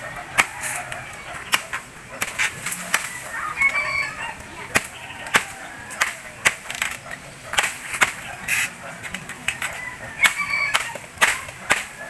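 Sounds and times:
machete chopping bamboo: 4.7s - 8.2s, 9.5s - 12.0s.

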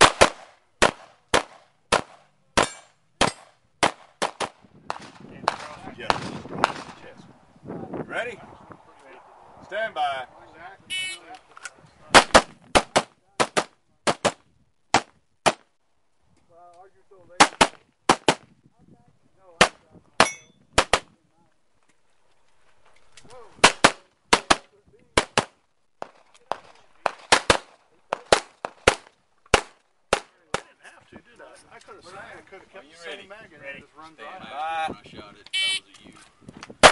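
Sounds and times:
pistol shots: 0.0s - 7.0s, 23.6s - 24.6s, 25.2s - 30.6s.

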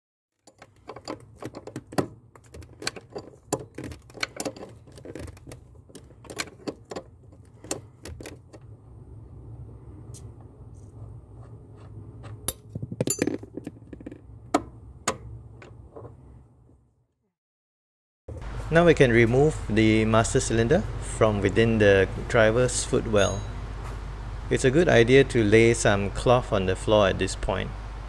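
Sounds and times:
metal tools clinking: 0.4s - 8.6s, 12.5s - 14.2s
low steady hum: 0.5s - 16.7s.

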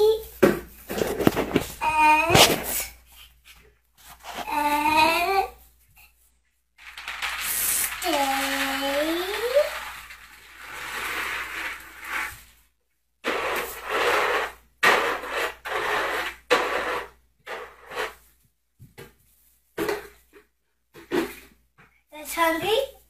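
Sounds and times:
dry kibble pouring and rattling: 6.8s - 12.6s.

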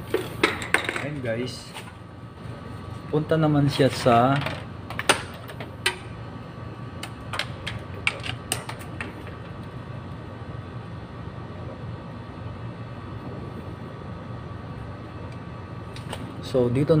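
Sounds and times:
low background hum: 0.0s - 17.0s
clicks and taps handling wire and tools: 7.0s - 9.6s.

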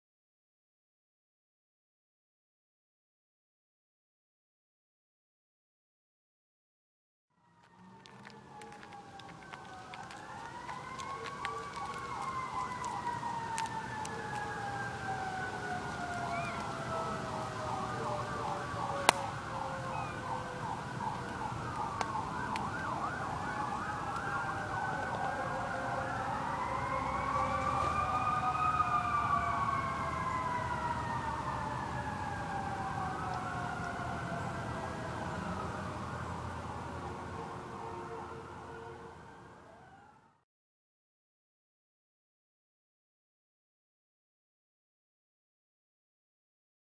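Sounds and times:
fire truck sirens wailing: 7.4s - 40.4s.

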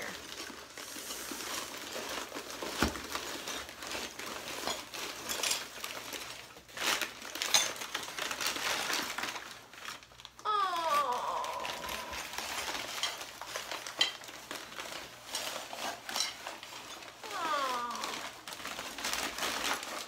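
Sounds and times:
paper wrapping crinkling: 0.0s - 20.0s
loose pieces clattering: 1.9s - 9.4s, 12.2s - 17.2s
disappointed groan: 10.4s - 12.7s, 17.2s - 18.3s.

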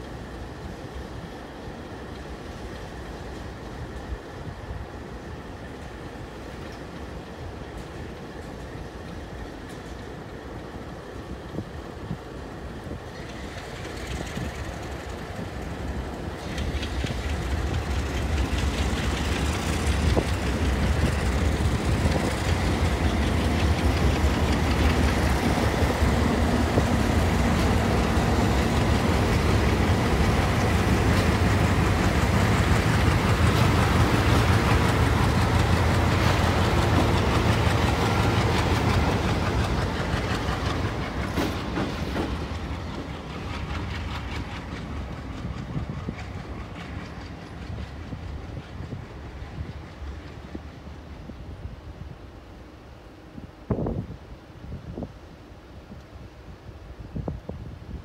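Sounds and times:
diesel locomotive engines droning: 0.0s - 58.0s.

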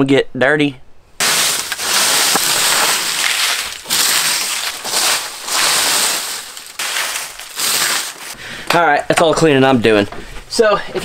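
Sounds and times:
push broom sweeping dry leaves: 1.2s - 8.4s.

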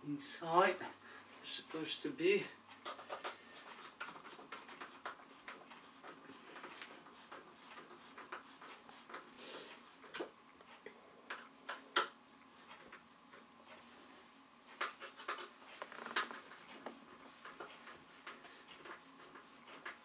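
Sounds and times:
parts clicking and knocking: 2.7s - 5.8s.

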